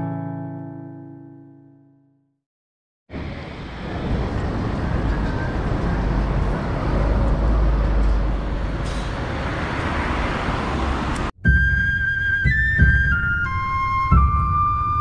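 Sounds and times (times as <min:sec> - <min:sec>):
street traffic rumble: 0:03.1 - 0:15.0
flute melody: 0:11.4 - 0:15.0.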